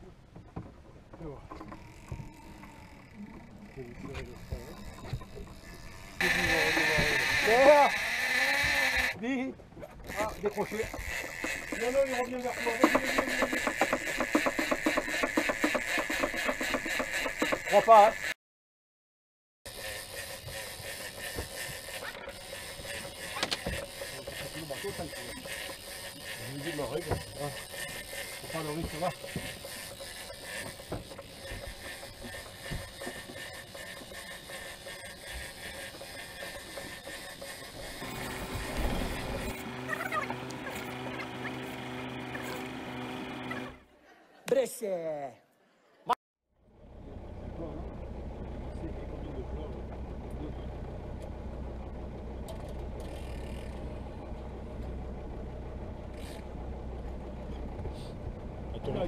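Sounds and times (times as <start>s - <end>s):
boat engine running: 0.0s - 9.2s, 9.8s - 18.4s, 19.7s - 43.9s, 46.6s - 59.0s
fishing reel whirring and clicking: 1.5s - 9.2s, 10.0s - 18.4s, 19.7s - 41.2s, 52.5s - 54.0s, 56.1s - 56.5s.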